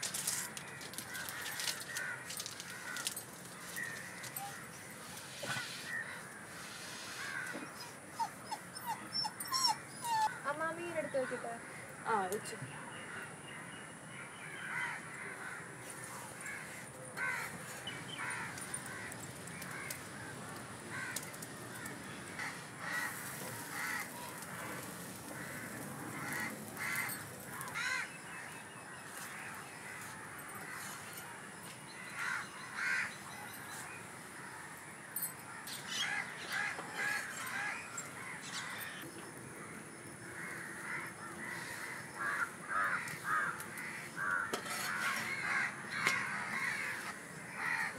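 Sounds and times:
birds calling: 0.1s - 47.9s.

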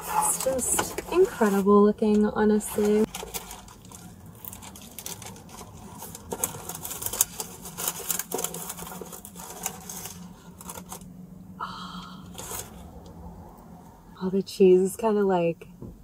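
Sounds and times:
packaging clicks and crackles: 2.8s - 11.1s.

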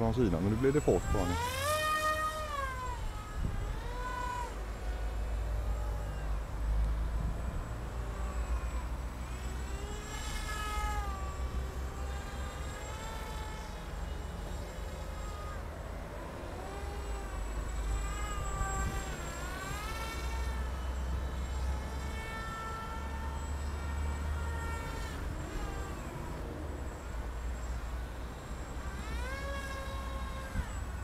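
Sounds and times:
model plane motor whining: 0.0s - 31.0s
wind rumble on microphone: 2.5s - 4.8s, 17.9s - 20.1s.

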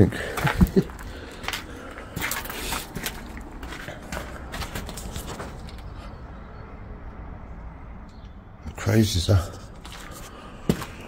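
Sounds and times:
footsteps crunching over rubble: 0.1s - 6.2s, 9.4s - 11.0s
shuffling footsteps: 0.3s - 6.1s, 9.4s - 11.0s.

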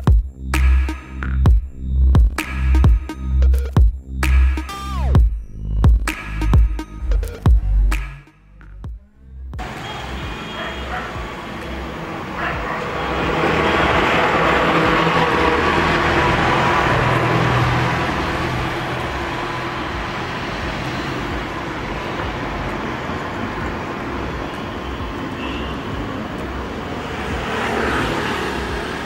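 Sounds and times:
road traffic: 0.0s - 29.0s.

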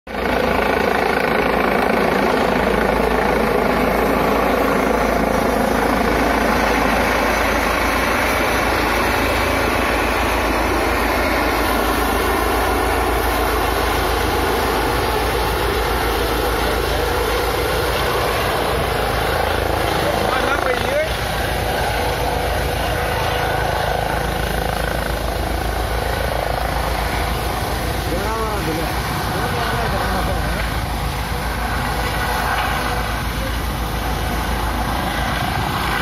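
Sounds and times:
helicopter flying low overhead: 0.1s - 36.0s.

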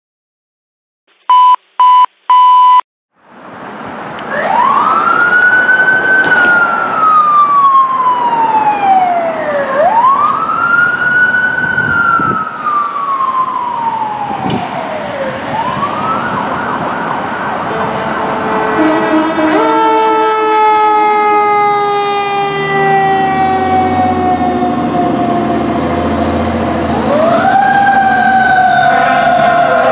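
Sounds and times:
short electronic beeps: 1.3s - 2.8s
emergency vehicle siren wailing: 4.2s - 29.9s.

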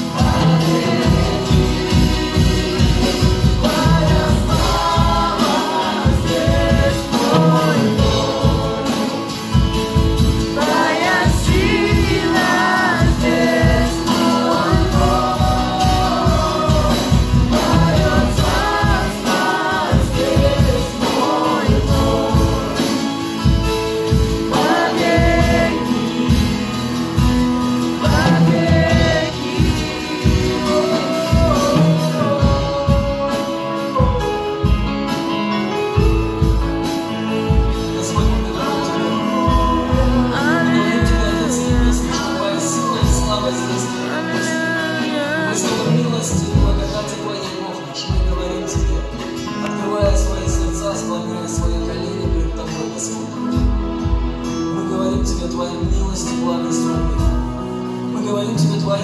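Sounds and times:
steady beat: 0.0s - 33.2s
voices singing together: 0.0s - 34.5s, 37.8s - 47.6s
acoustic guitar: 0.0s - 59.0s
keyboard: 0.0s - 59.0s.

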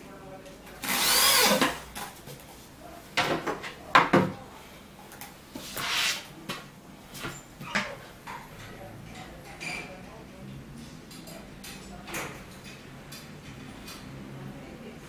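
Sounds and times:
panel sliding scrape: 5.6s - 6.2s.

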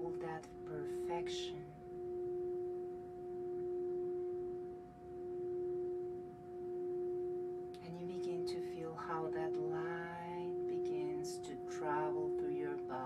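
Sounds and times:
singing bowl tone: 0.0s - 13.0s.

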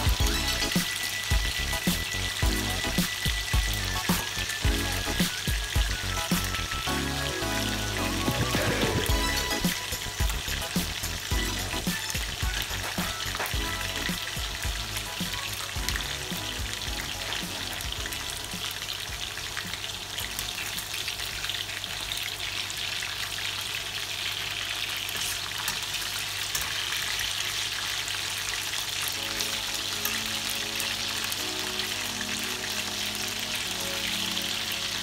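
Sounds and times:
chicken sizzling in frying pan: 0.0s - 35.0s
spatula turning food in pan: 23.6s - 35.0s.

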